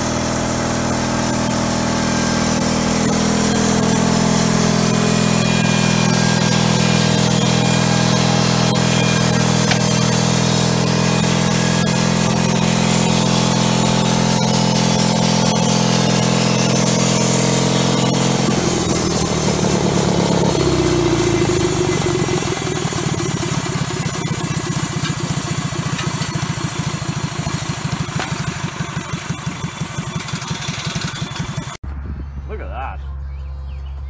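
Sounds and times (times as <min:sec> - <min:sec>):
bandsaw blade cutting log: 0:00.0 - 0:31.8
sawmill engine running: 0:00.0 - 0:31.9.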